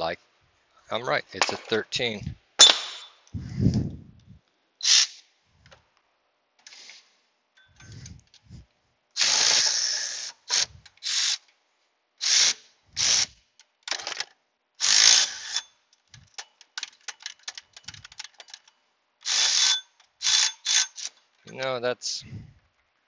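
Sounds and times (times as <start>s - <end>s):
cordless ratchet running: 9.2s - 11.4s, 14.8s - 16.4s, 19.2s - 21.2s
ratchet clicks: 9.2s - 11.5s, 12.2s - 21.6s.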